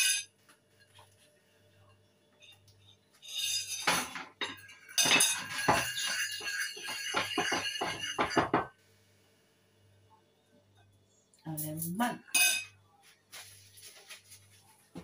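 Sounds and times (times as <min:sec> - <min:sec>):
metal spoon clinking in ceramic bowl: 0:03.3 - 0:08.7, 0:11.6 - 0:12.8.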